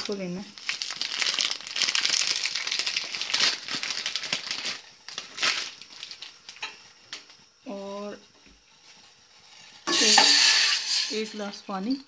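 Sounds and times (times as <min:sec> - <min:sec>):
foil packet crinkling: 0:00.0 - 0:07.5.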